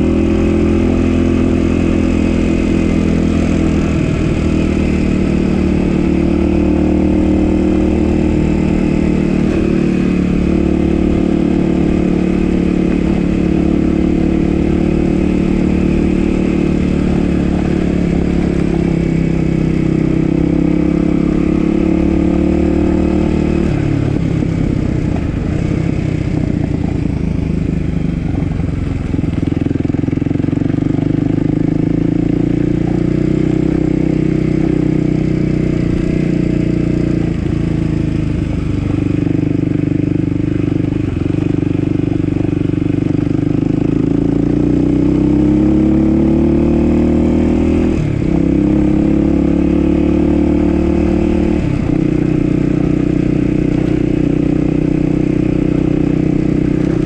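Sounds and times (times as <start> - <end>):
dirt bike engine revving: 0.0 - 27.0, 42.8 - 57.0.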